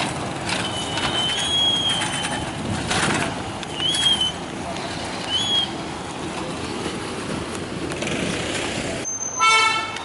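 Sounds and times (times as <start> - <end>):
vehicle engine noise: 0.0 - 9.2
loud horn toot: 9.4 - 10.0.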